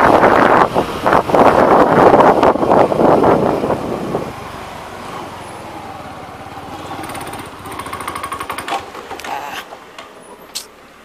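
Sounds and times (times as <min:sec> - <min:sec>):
wind on microphone: 0:00.0 - 0:04.4
motorcycle engine running: 0:00.0 - 0:09.4.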